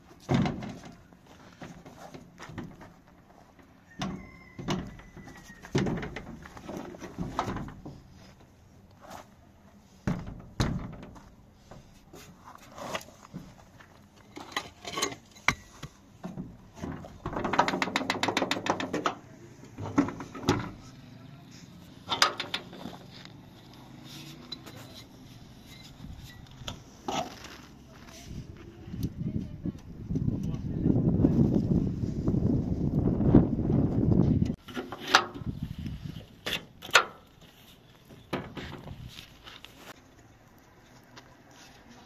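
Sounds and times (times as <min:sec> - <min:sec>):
knocks and thuds: 0:05.7 - 0:08.0
metal rattles: 0:22.0 - 0:23.0.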